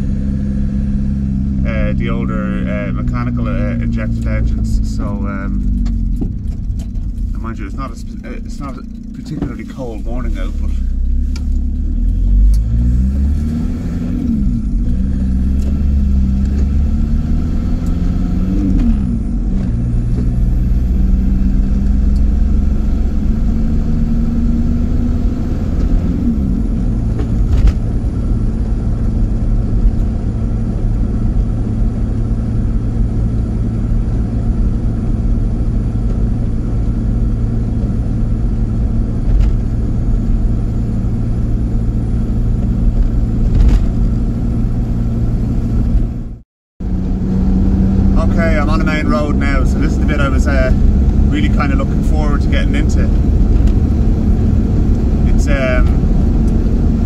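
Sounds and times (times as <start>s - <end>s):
diesel engine shifting gears: 0.0s - 57.0s
low road rumble: 0.0s - 57.0s.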